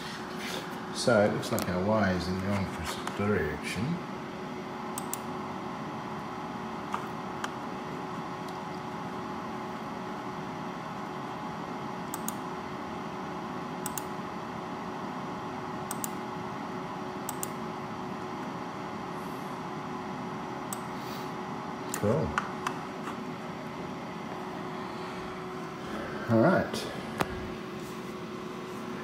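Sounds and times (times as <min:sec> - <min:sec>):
sharp clicks: 0:05.0 - 0:05.3, 0:12.1 - 0:12.4, 0:13.8 - 0:14.1, 0:15.9 - 0:16.2, 0:17.3 - 0:17.6.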